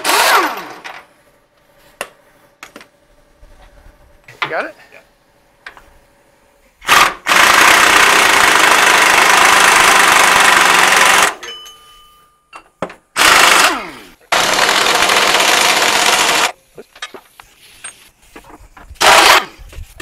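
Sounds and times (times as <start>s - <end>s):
pneumatic impact wrench: 0.0s - 1.1s, 6.8s - 11.4s, 13.2s - 16.6s, 19.0s - 19.6s.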